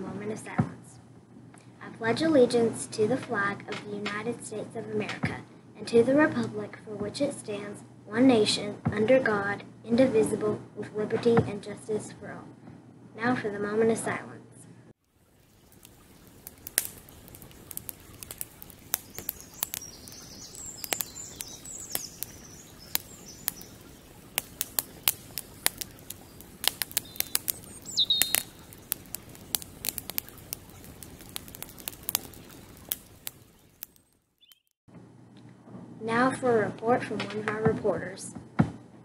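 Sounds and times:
campfire crackling: 15.0s - 34.8s
birds chirping faintly: 15.1s - 34.8s.

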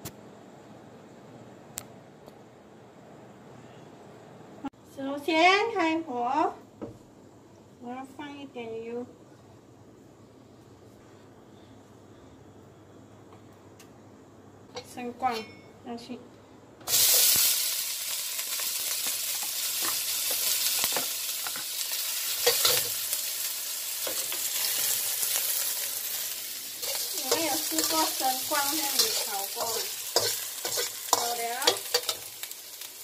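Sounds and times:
food sizzling in a wok: 16.8s - 33.0s
metal spatula scraping a pan: 22.3s - 23.0s, 26.8s - 32.4s.

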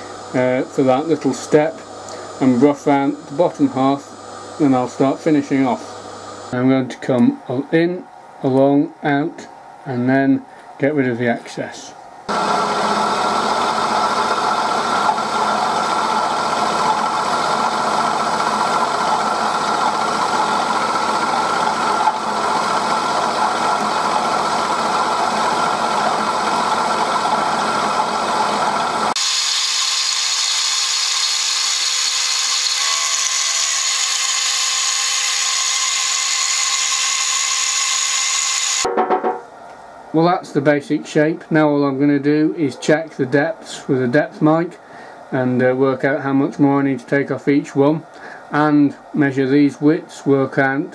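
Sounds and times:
milling machine cutting metal: 12.3s - 38.9s.

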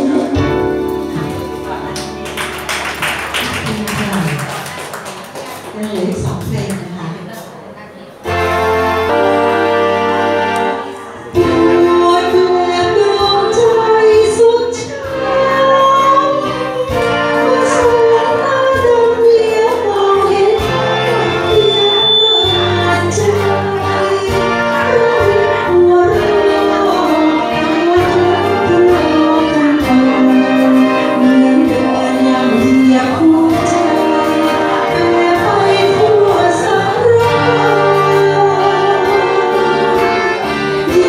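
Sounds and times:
woman singing into a microphone: 0.0s - 1.5s, 11.4s - 41.0s
backing music: 0.0s - 7.5s, 8.2s - 41.0s.

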